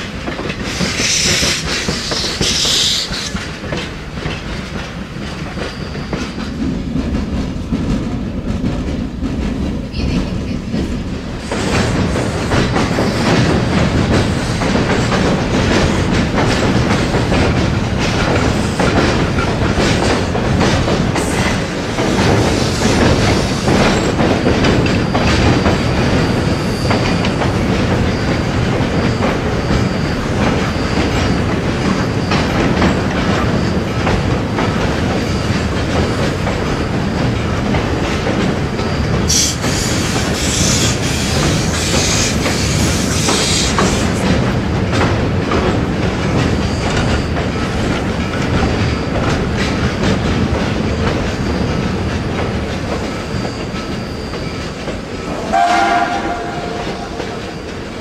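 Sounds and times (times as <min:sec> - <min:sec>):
train wheels clacking over rail joints: 0:00.0 - 0:58.0
wheel squeal: 0:53.0 - 0:58.0.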